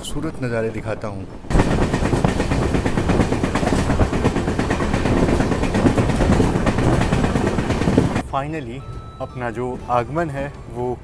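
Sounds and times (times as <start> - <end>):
train running rush: 0.0 - 9.0
rail clicks and clatter: 1.4 - 8.2.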